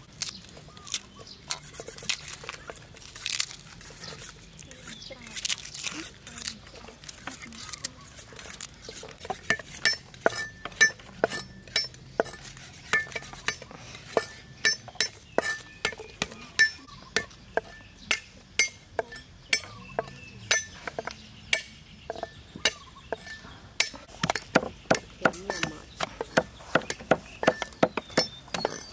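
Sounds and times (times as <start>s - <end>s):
knife chopping on wooden board: 24.2s - 28.9s.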